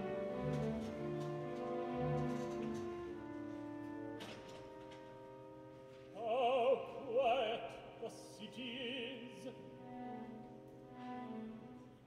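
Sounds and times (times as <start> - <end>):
sustained orchestral chords: 0.0 - 12.0
operatic tenor singing: 6.1 - 10.6.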